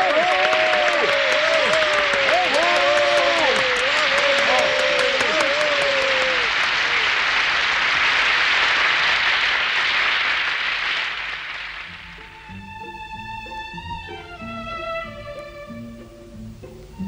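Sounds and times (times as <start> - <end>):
large audience applauding: 0.0 - 12.2.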